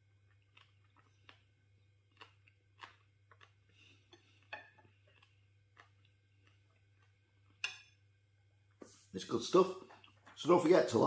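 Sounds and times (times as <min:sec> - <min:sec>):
low steady hum: 0:00.0 - 0:11.0
faint eating clicks: 0:00.2 - 0:07.6.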